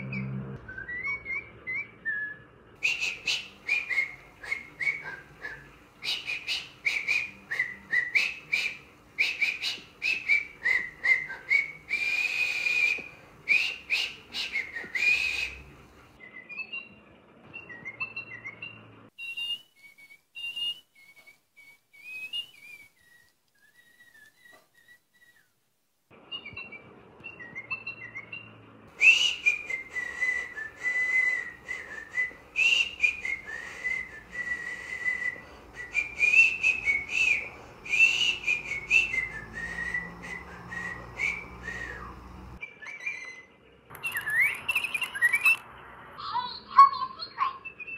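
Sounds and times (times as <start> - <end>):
toy bird chirping: 42.7 - 45.6, 46.2 - 47.9.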